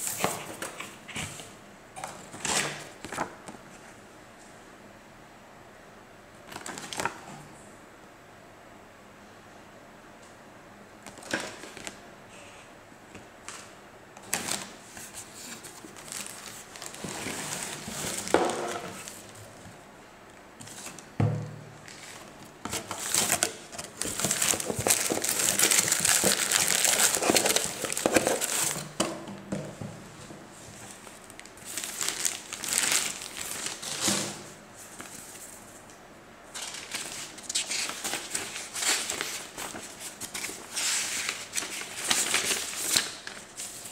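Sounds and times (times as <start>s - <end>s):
paper and cardboard rustling: 0.0s - 1.5s, 14.2s - 19.7s, 21.9s - 29.0s, 30.6s - 35.8s, 36.5s - 43.9s
plastic wrapping crinkling: 14.3s - 19.6s, 21.8s - 29.0s, 30.8s - 34.0s, 36.5s - 43.9s
booklet pages rustling: 14.3s - 19.8s, 21.9s - 29.0s, 30.7s - 33.9s, 36.5s - 43.9s.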